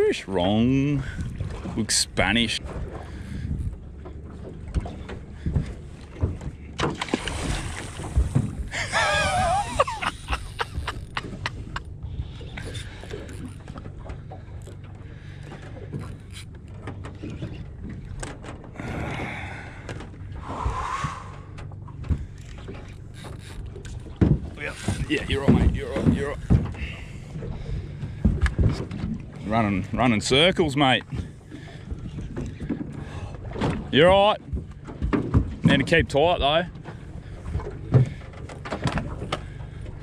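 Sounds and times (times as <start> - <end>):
outboard motor idling: 0.0 - 20.4, 21.3 - 40.0
water slapping: 0.0 - 40.0
wind on microphone: 20.4 - 22.3.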